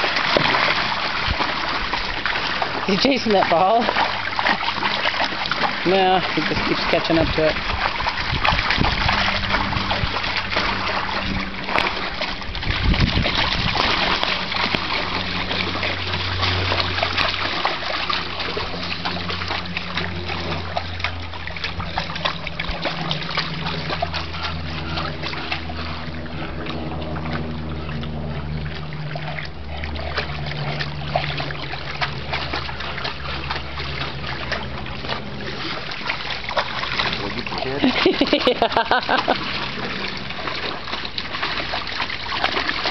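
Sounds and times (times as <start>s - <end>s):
dog splashing in water: 0.0s - 42.9s
low drone: 13.4s - 37.9s.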